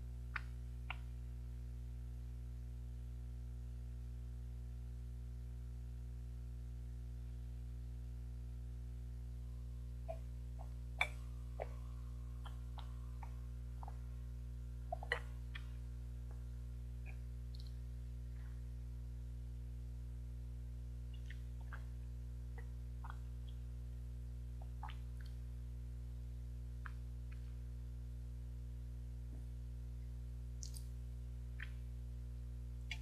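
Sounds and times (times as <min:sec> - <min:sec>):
low electrical hum: 0:00.0 - 0:33.0
gulps and mouth clicks drinking: 0:10.0 - 0:17.9, 0:21.1 - 0:23.7, 0:24.6 - 0:25.4, 0:30.6 - 0:30.9.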